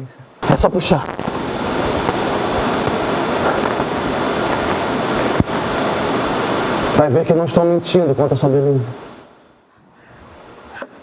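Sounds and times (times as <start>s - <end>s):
loud rushing noise: 0.4s - 7.1s.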